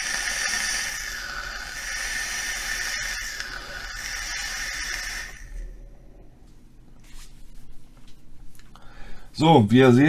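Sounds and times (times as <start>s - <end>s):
vaporizer draw hiss: 0.0s - 5.8s
vapour being exhaled: 0.0s - 5.8s.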